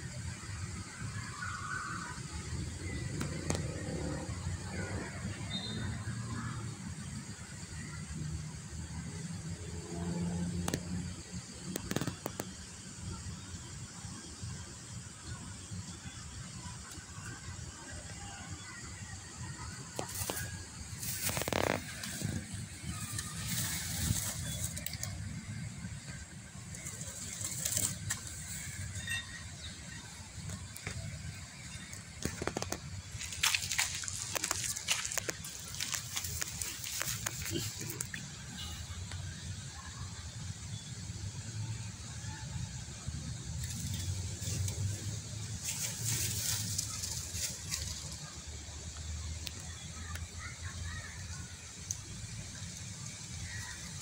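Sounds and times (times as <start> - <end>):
rustling in dry leaves: 19.6 - 39.0, 43.2 - 54.0
sharp crackles: 19.9 - 38.7.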